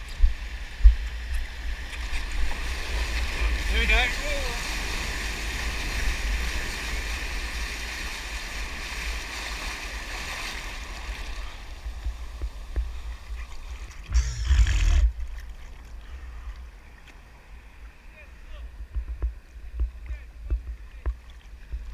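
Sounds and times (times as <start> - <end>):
whitewater rushing and churning: 1.6 - 15.8
water splashing on camera: 8.7 - 17.2.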